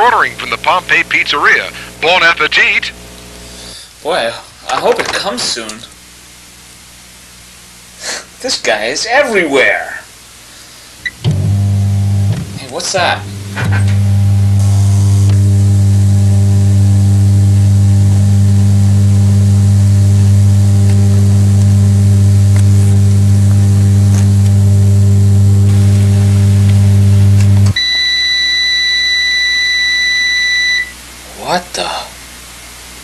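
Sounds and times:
fax machine buzzing: 0.0 - 3.7, 11.0 - 31.0
long high beep: 27.8 - 31.0.

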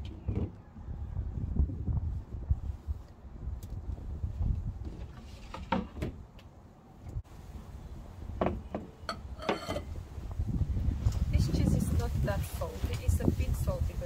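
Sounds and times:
wind rumble on microphone: 0.0 - 5.6, 9.7 - 14.0
kitchenware knocking and clinking: 8.4 - 9.9.

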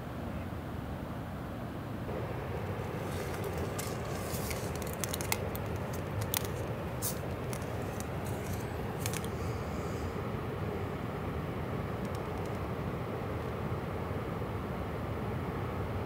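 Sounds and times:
steady low rumble: 2.1 - 15.3
plastic packaging crinkling: 2.6 - 9.6.

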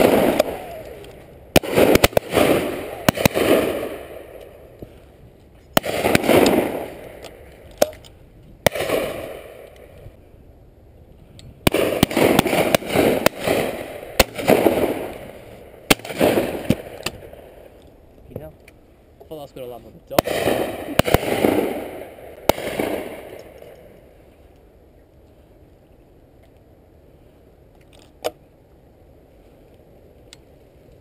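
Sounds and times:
shotgun shots with echo: 0.0 - 1.0, 1.6 - 4.4, 5.8 - 7.2, 8.6 - 9.6, 11.6 - 15.3, 15.9 - 17.4, 20.2 - 23.4.

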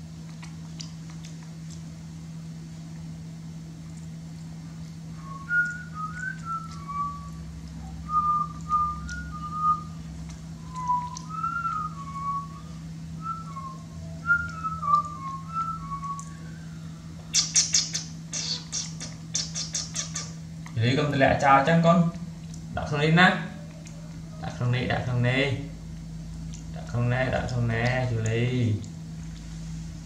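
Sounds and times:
steady low hum: 0.0 - 30.0
person whistling a tune: 5.2 - 10.0, 10.6 - 16.8.

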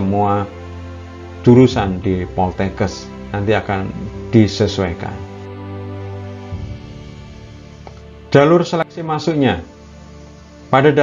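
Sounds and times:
instrumental music chords: 0.0 - 10.8.

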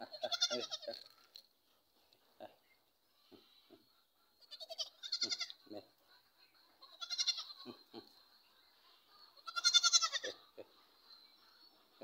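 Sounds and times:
goat kid bleating: 0.0 - 1.1, 4.4 - 5.6, 6.8 - 8.2, 9.4 - 10.5.

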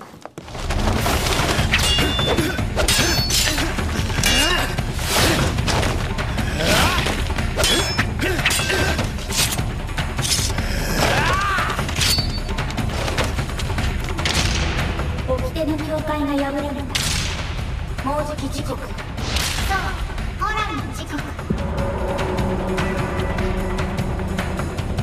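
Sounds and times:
dramatic background music: 0.4 - 25.0
metal blades clashing: 1.6 - 5.5, 6.9 - 10.6, 11.8 - 12.5.

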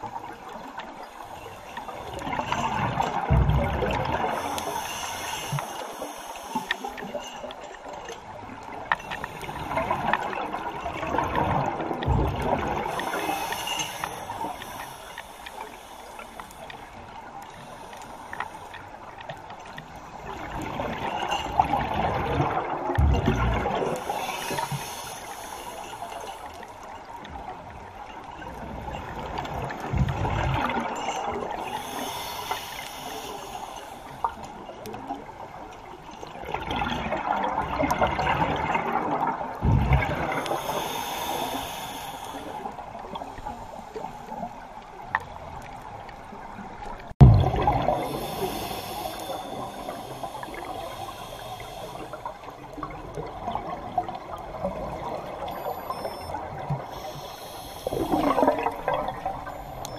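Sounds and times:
exhaled bubbles gurgling: 0.0 - 18.0, 19.4 - 25.5, 26.5 - 59.9
regulator inhale hiss: 0.2 - 2.7, 4.0 - 7.7, 8.9 - 10.6, 12.3 - 20.6, 23.7 - 27.1, 30.6 - 35.0, 40.0 - 44.8, 47.7 - 53.2, 55.2 - 59.9.

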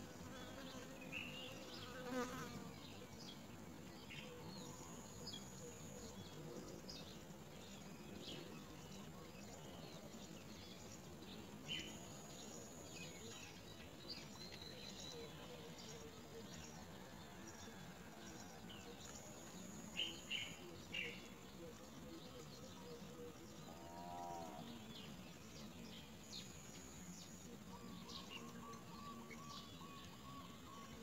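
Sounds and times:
flying insect buzzing: 0.0 - 2.8.

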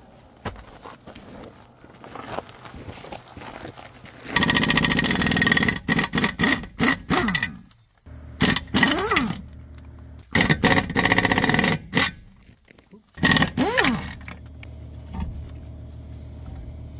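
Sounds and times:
impact wrench rattling: 4.4 - 7.7, 8.4 - 12.5, 13.2 - 14.4
air motor whine: 13.2 - 16.9.

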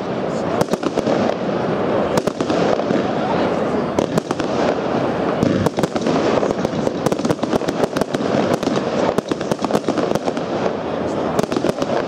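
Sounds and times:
firework shells bursting: 3.9 - 12.0.

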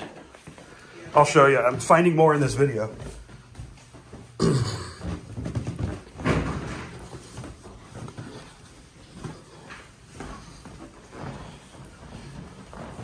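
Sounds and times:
footsteps on stairs and hard floor: 0.0 - 13.0.

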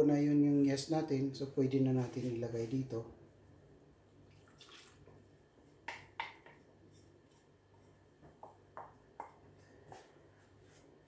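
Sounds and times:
plastic bowl tapping: 5.9 - 6.6.

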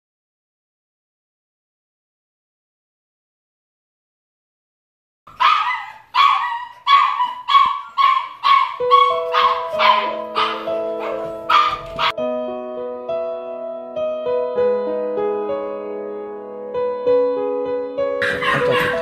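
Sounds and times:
puppy barking: 5.3 - 12.2, 18.2 - 19.0
soft piano music: 6.9 - 19.0.

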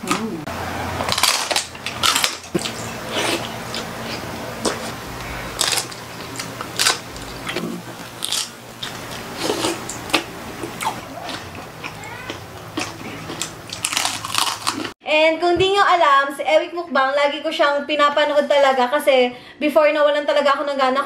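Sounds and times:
faint steady hum: 0.0 - 14.9
crunchy food chewing: 0.0 - 15.0.

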